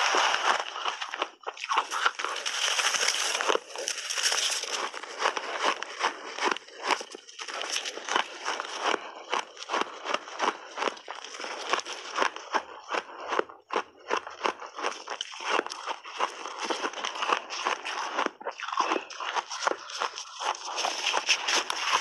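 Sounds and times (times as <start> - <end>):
hands working ice: 0.0 - 5.9, 15.0 - 22.0
shaved ice crunching: 0.0 - 9.0, 15.0 - 22.0.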